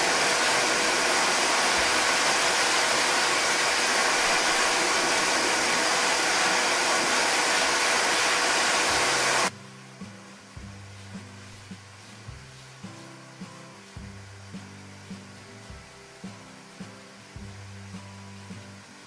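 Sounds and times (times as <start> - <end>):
dog dryer blowing air: 0.0 - 9.5
soft background music: 9.5 - 19.0.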